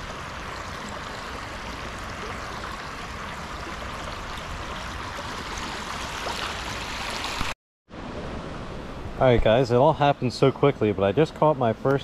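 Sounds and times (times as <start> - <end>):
creek water flowing over rocks: 0.0 - 7.6.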